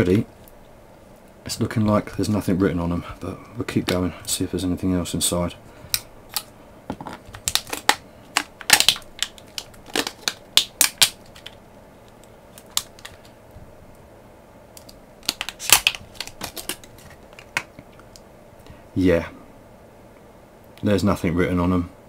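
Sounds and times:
plastic wrap crackling: 0:05.9 - 0:13.4, 0:14.8 - 0:18.2.

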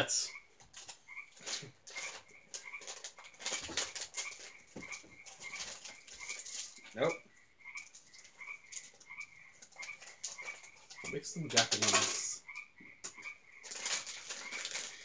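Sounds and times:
frogs calling: 0:00.0 - 0:15.0
plastic snack bag crinkling: 0:00.7 - 0:07.0, 0:13.6 - 0:15.0.

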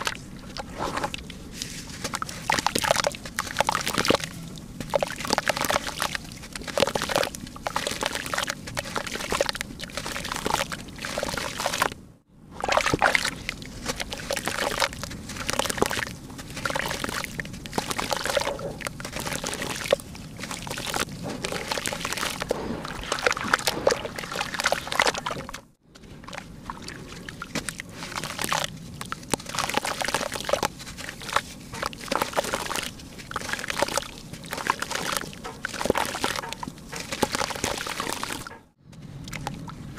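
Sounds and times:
pieces splashing into muddy water: 0:12.6 - 0:25.6
wet dirt crumbling by hand: 0:26.3 - 0:38.5.

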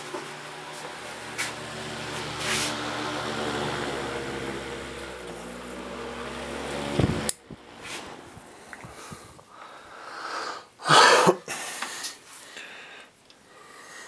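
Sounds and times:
electric fan motor hum: 0:00.0 - 0:09.8.

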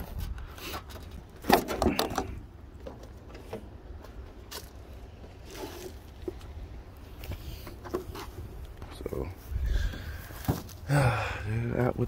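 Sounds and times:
car parts clicking and rattling: 0:00.0 - 0:06.5.

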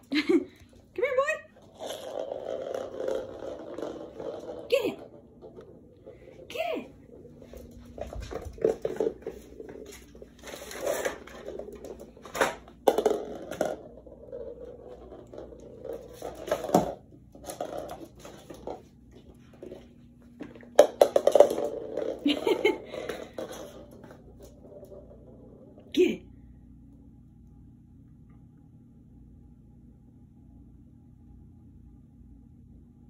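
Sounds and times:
plastic ball clattering on floor: 0:01.5 - 0:25.8.

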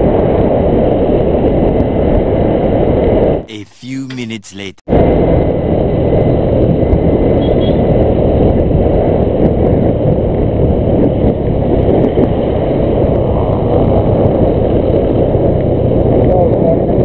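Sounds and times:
wind rush on microphone: 0:00.0 - 0:03.4, 0:04.9 - 0:17.0.

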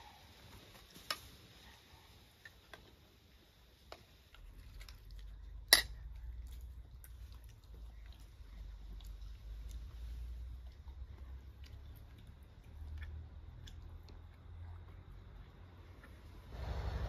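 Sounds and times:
low rumble: 0:16.4 - 0:17.0.

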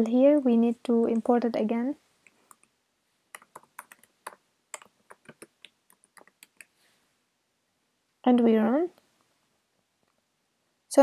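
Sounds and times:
keyboard typing: 0:02.3 - 0:06.8.

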